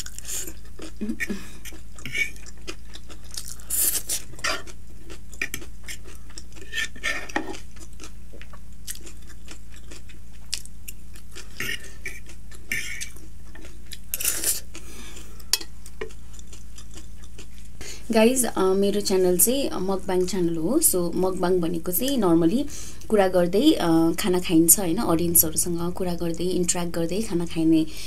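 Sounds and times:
chewing and mouth sounds: 0.0 - 17.8
steady low hum: 0.0 - 28.0.

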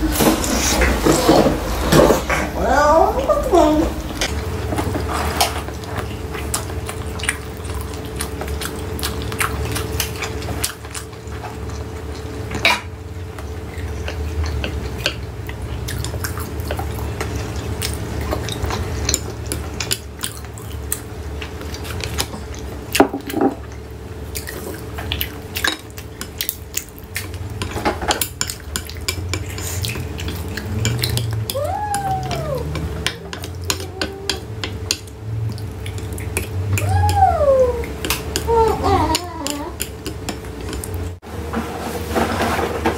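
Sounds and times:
steady low hum: 0.0 - 42.9
wet chewing and mouth clicks: 5.4 - 38.5.

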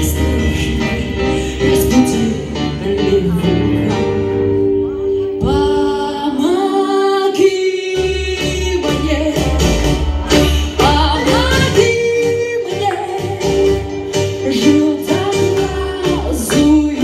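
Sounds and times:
woman singing into microphone: 0.0 - 17.0.

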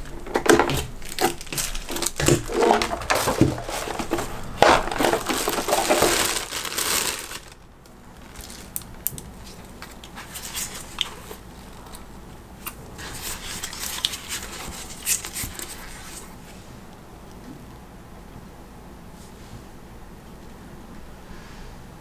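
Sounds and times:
foam wrap rustling: 0.0 - 16.4
plastic packaging crinkling: 0.0 - 16.4.

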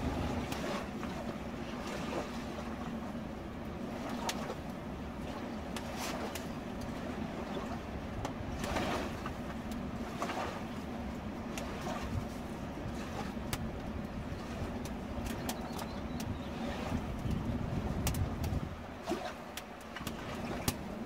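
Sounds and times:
campfire crackling and popping: 18.0 - 18.6.

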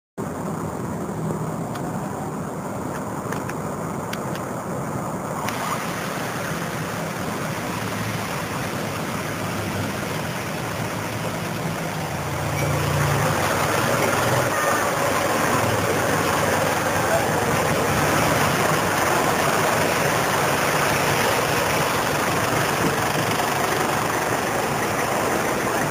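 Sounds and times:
street traffic noise: 0.2 - 25.9
engine running close by: 5.2 - 25.9.

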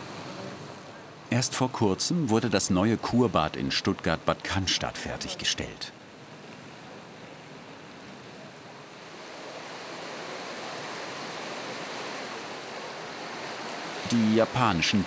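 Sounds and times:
pool water splashing: 8.9 - 15.0.

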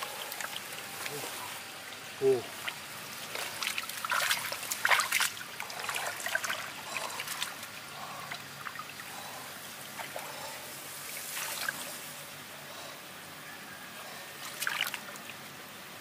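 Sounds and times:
muddy water splashing: 0.0 - 12.4, 14.4 - 15.6
water trickling: 0.0 - 12.6, 14.4 - 16.0.

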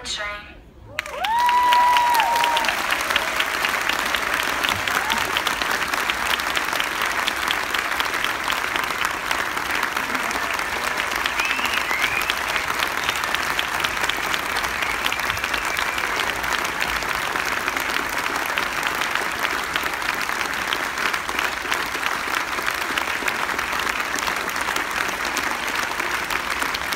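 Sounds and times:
audience applauding: 0.9 - 26.9.

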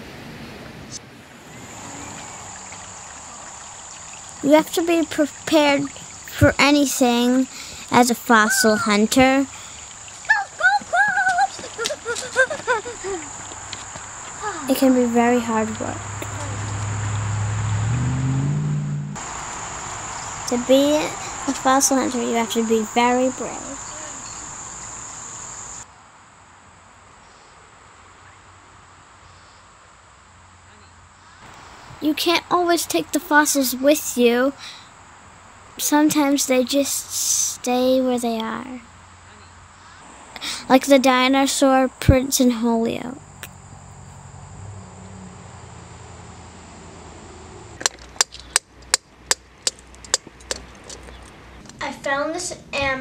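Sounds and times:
faint background hiss: 0.0 - 16.8, 19.2 - 44.2
crickets chirping: 1.0 - 53.0.

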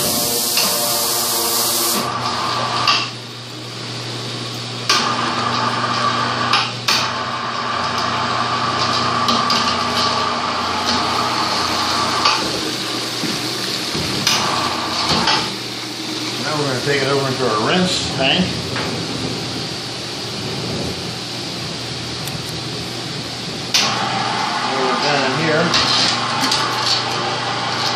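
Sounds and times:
churning water hiss: 0.0 - 4.0, 8.1 - 27.9
steady electrical hum: 0.0 - 27.9
metal clanks and knocks: 12.2 - 15.5.

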